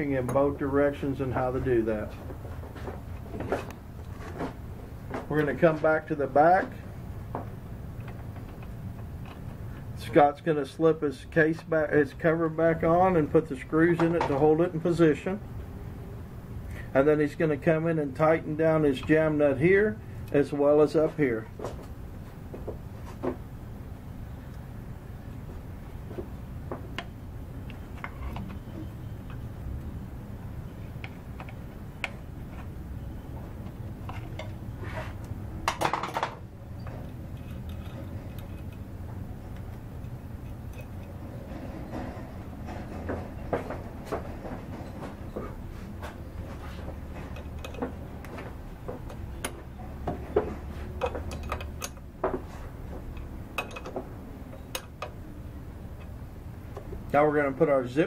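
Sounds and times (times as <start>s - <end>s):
steady low hum: 0.0s - 58.0s
wrench clinking on metal: 51.0s - 52.1s, 53.1s - 54.0s.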